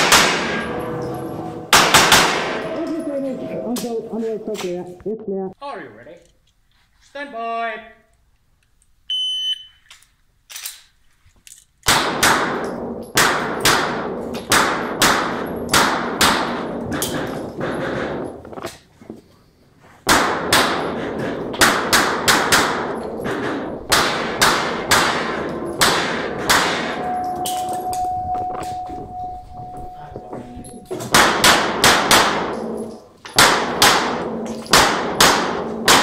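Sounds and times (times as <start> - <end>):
rapid pistol shots echoing: 0.0 - 0.7, 1.7 - 2.7, 11.9 - 17.3, 20.1 - 27.0, 31.1 - 32.8, 33.4 - 36.0.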